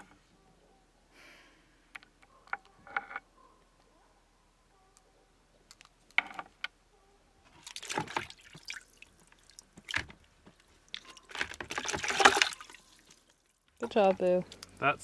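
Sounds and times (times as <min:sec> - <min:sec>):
water sloshing in a plastic bucket: 0:07.5 - 0:15.0.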